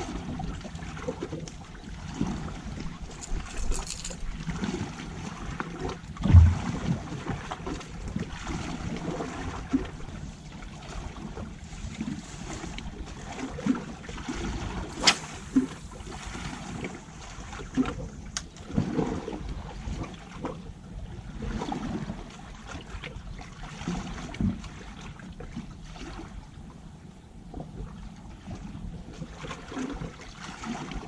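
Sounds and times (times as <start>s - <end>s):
sea noise: 0.0s - 20.1s
wind: 0.0s - 31.0s
heavy thump: 6.2s - 6.8s
sharp click: 15.0s - 15.8s.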